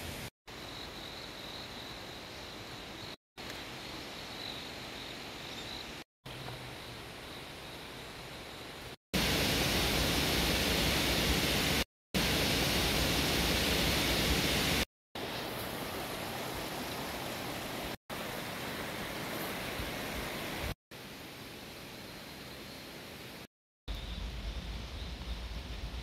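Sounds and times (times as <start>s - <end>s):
mountain stream rushing: 9.2s - 20.8s.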